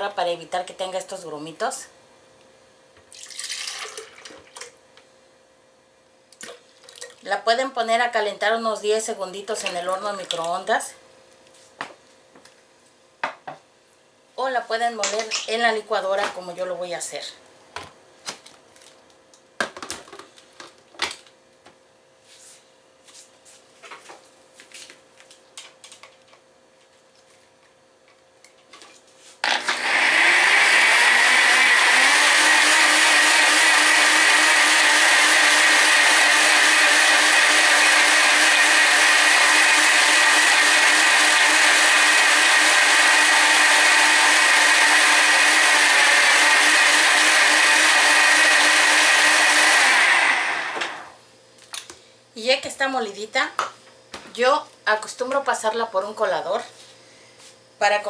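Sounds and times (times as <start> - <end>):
blender motor whining: 29.4 - 51.2.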